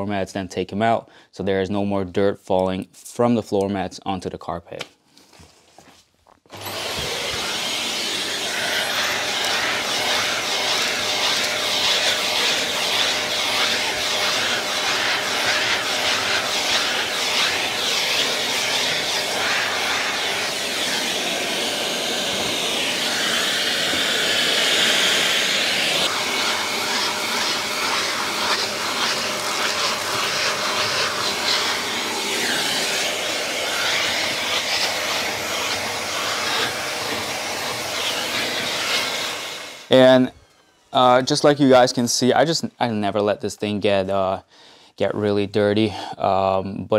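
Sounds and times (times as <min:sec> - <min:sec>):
vacuum cleaner running: 0:06.5 - 0:42.0.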